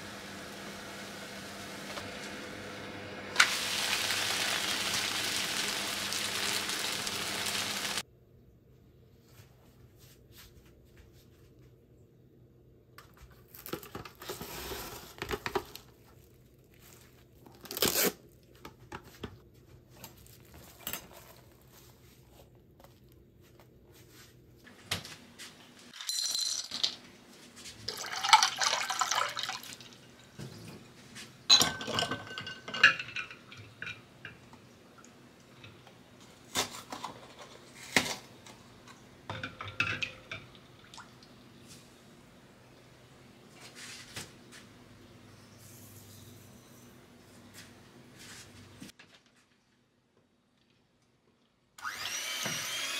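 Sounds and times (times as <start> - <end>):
glass bowls clinking: 31.5 - 34.6, 39.3 - 40.6.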